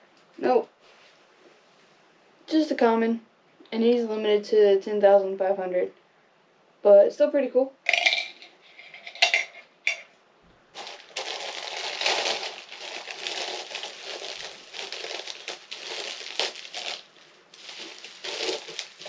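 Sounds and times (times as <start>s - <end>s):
plastic packaging crinkling: 10.7s - 19.0s.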